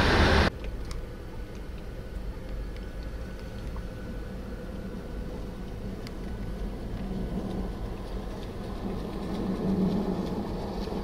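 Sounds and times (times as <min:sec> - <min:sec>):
wheel spinning in snow: 0:04.0 - 0:11.0.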